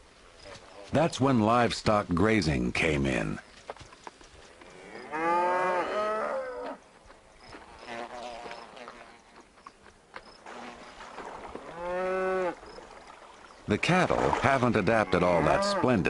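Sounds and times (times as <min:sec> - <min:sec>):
cow mooing: 0:04.8 - 0:06.8, 0:11.7 - 0:12.6, 0:15.0 - 0:16.0.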